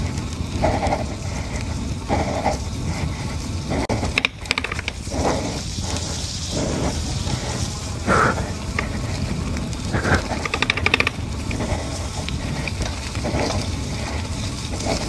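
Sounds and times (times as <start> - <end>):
rider puffing breath: 0.0 - 15.0
wind: 0.0 - 15.0
mudguards rattling: 3.7 - 15.0
burst of clicks: 4.1 - 5.1, 9.8 - 11.6.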